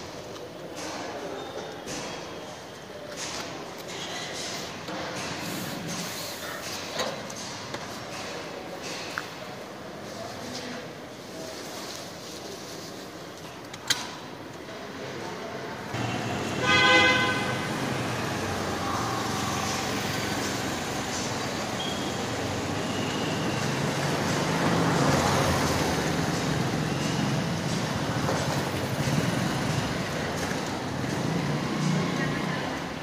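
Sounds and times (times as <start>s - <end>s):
vehicle noise with low hum: 15.9s - 33.0s
vehicle horn: 16.0s - 18.2s.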